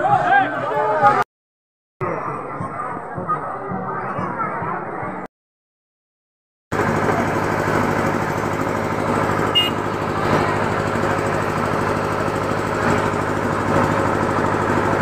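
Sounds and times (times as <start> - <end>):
engine droning: 6.7 - 15.0.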